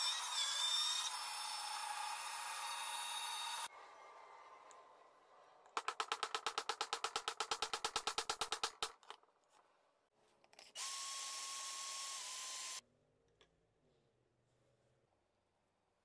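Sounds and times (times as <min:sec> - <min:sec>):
power drill whining: 0:00.0 - 0:03.7, 0:10.8 - 0:12.8.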